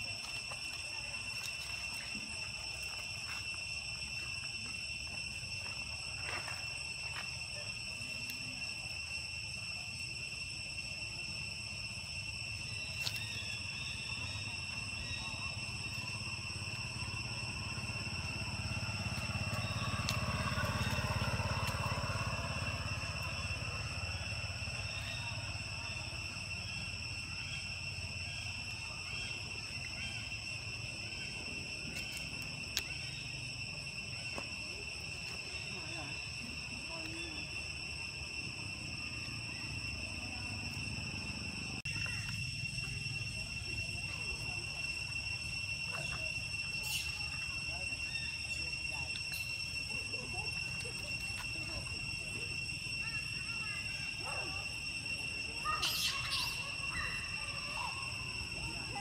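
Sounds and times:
insect buzzing drone: 0:00.0 - 0:59.0
low outdoor rumble: 0:13.4 - 0:55.6.

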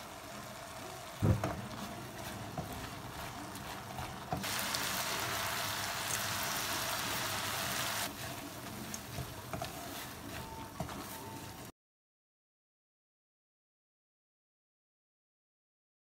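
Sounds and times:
food sizzling in a wok: 0:00.0 - 0:11.7
spatula scraping and tapping: 0:01.4 - 0:04.5, 0:08.1 - 0:11.4.

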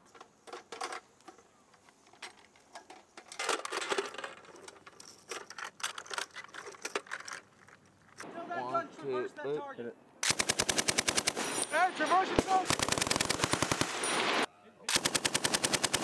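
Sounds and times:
ammunition belt clinking and rattling: 0:00.1 - 0:08.3.

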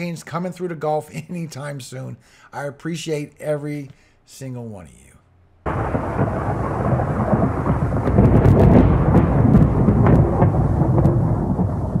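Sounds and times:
rain hissing: 0:05.7 - 0:12.0
thunder rumbling and crackling: 0:05.7 - 0:12.0.

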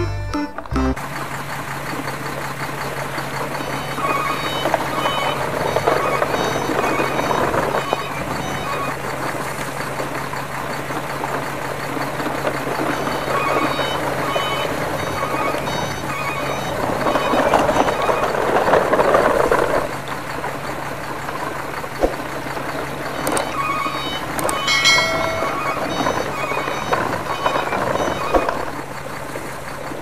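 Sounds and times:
toy trucks rattling over dirt: 0:01.0 - 0:30.0
electronic tune of beeping notes: 0:23.3 - 0:28.5.

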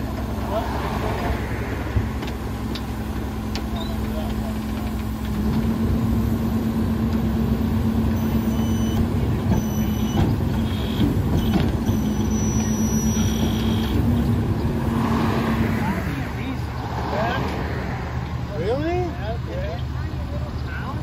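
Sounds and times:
hydraulic packer running: 0:00.0 - 0:15.0
short knocks and squeals: 0:08.2 - 0:14.3.

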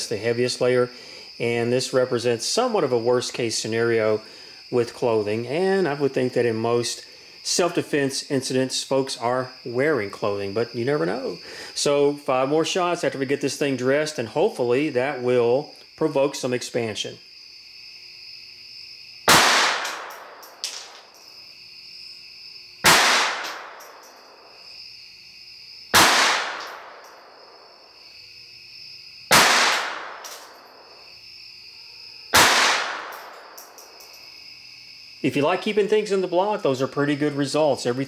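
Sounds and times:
pistol shots: 0:19.3 - 0:21.0, 0:22.8 - 0:24.4, 0:25.9 - 0:27.2, 0:29.3 - 0:30.7, 0:32.3 - 0:33.8.

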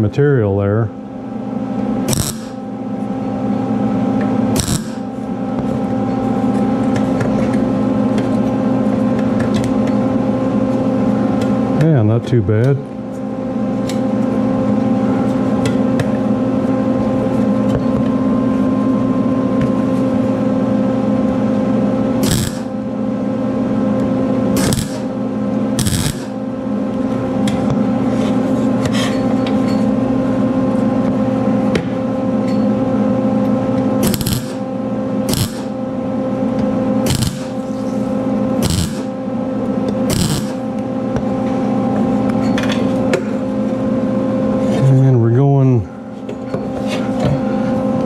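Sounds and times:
steady hum: 0:00.0 - 0:48.0
welder arc bursts: 0:02.1 - 0:02.6, 0:04.6 - 0:05.0, 0:22.2 - 0:22.7, 0:24.6 - 0:25.1, 0:25.8 - 0:26.3, 0:34.0 - 0:34.6, 0:35.3 - 0:35.7, 0:37.0 - 0:37.6, 0:38.6 - 0:39.1, 0:40.1 - 0:40.6.

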